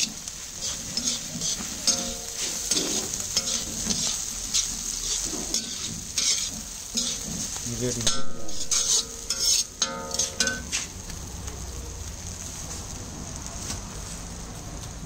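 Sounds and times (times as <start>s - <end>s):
metal spatula scraping a pan: 0.0s - 11.0s
metal clanking on a pan: 0.0s - 11.2s
sizzling pan: 0.0s - 15.0s.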